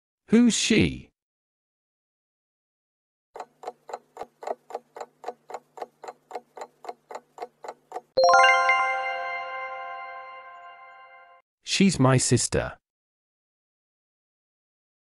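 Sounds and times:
clock ticking: 0:03.4 - 0:08.2
bright chime: 0:08.2 - 0:11.4.

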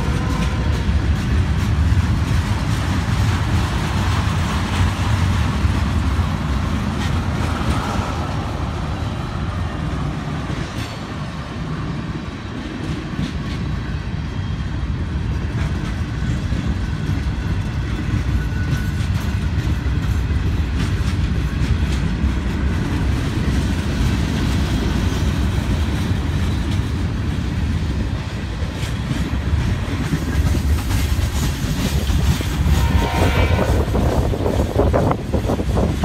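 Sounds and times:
wheels clacking over rail joints: 0:00.0 - 0:13.9, 0:15.2 - 0:36.0
freight train wheels rumbling: 0:00.0 - 0:36.0
high-pitched wheel squeal: 0:32.6 - 0:34.3.

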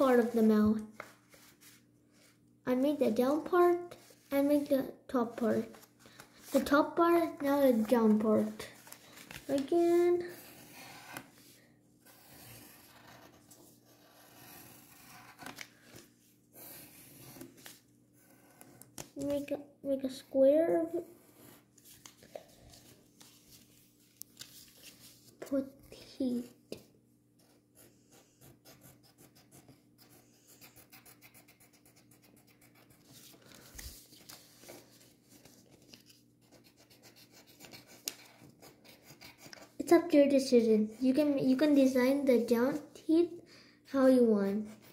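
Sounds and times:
pencil scratching on paper: 0:09.9 - 0:15.6, 0:16.5 - 0:18.9, 0:20.9 - 0:21.7, 0:27.4 - 0:33.4, 0:36.4 - 0:40.0, 0:44.5 - 0:44.9.

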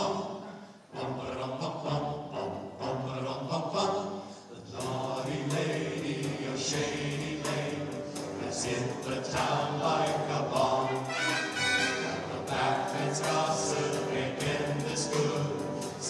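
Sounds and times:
men's vocal ensemble singing: 0:00.0 - 0:16.0
sharp ticks keeping a beat: 0:04.8 - 0:11.2, 0:12.0 - 0:16.0.

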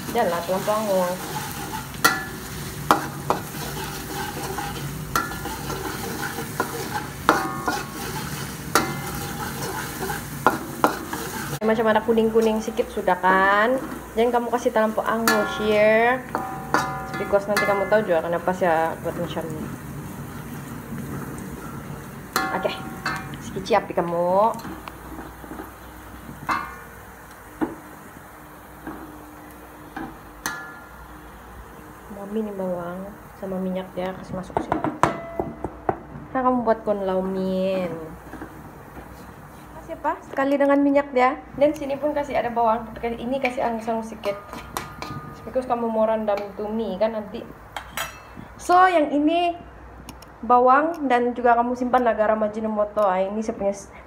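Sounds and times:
spatula scraping wok: 0:00.0 - 0:31.1, 0:37.8 - 0:40.0, 0:42.0 - 0:47.0
garlic sizzling in oil: 0:00.0 - 0:49.2
spatula clanking against wok: 0:01.2 - 0:11.6, 0:15.1 - 0:18.6, 0:21.6 - 0:25.8, 0:26.4 - 0:27.0, 0:30.0 - 0:31.0, 0:34.6 - 0:36.0, 0:43.4 - 0:45.7, 0:47.7 - 0:48.5.

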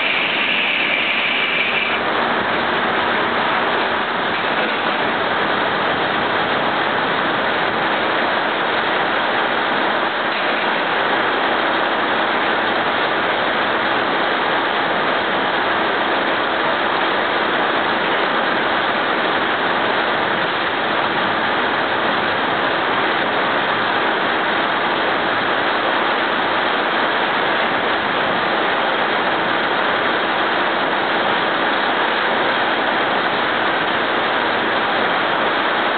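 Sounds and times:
sawmill machinery running: 0:00.0 - 0:26.4.

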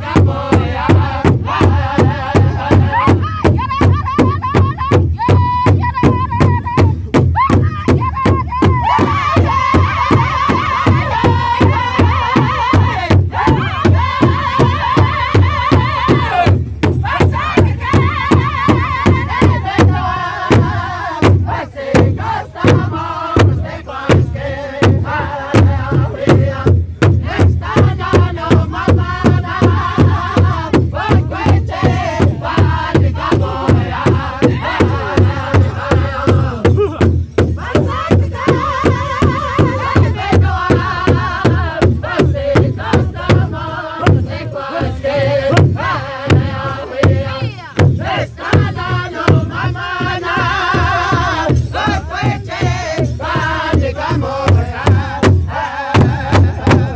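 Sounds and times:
men chanting together: 0:00.0 - 0:03.7, 0:08.6 - 0:56.9
large drum strikes: 0:45.2 - 0:56.9.

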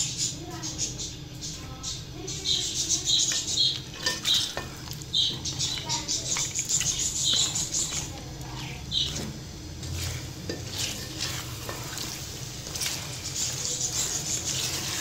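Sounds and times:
chicken sizzling in oil: 0:00.1 - 0:15.0
spatula scraping metal pot: 0:03.2 - 0:08.2, 0:08.9 - 0:15.0.

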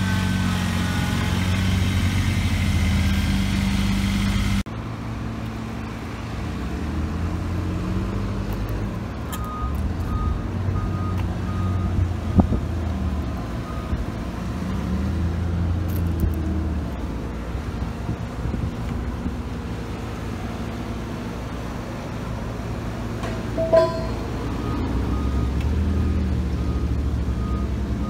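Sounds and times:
high beeps: 0:23.5 - 0:25.5.

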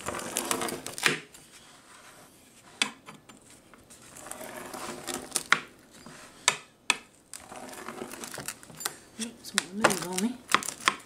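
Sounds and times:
pizza cutter scraping through cheese: 0:00.0 - 0:02.8, 0:04.0 - 0:06.4, 0:07.4 - 0:08.6.

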